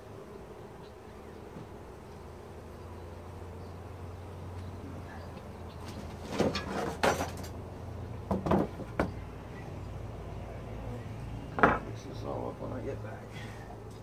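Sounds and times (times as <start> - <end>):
low hum of bees: 0.0 - 14.0
wood knocking and scraping on wood: 5.8 - 7.6, 8.2 - 9.2, 11.6 - 12.0.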